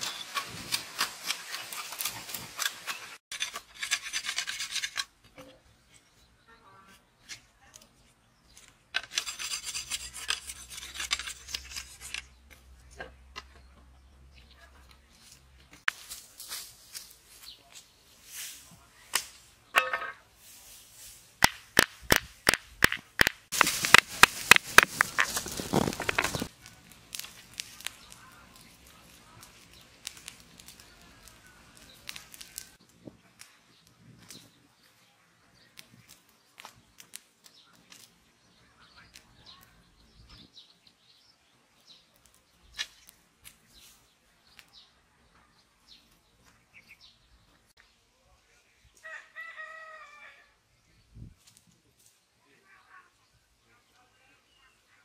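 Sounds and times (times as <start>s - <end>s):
straw crackling in fire: 0.0s - 5.3s, 7.0s - 13.7s, 14.6s - 48.1s
birds chirping: 27.6s - 49.0s.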